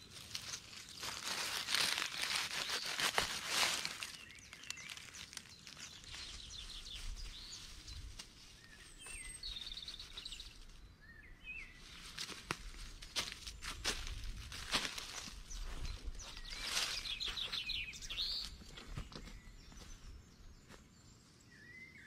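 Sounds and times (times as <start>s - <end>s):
footsteps on dry leaves: 0.0s - 10.8s, 11.7s - 20.8s
small birds whistling: 8.6s - 11.8s, 15.4s - 20.3s, 21.5s - 22.0s.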